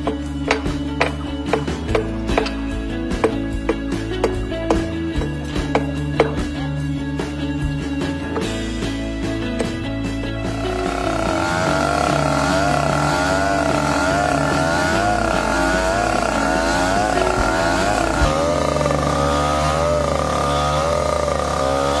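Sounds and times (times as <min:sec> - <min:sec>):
engine whining: 0:08.2 - 0:22.0
abrasive wheel grinding steel: 0:08.4 - 0:22.0.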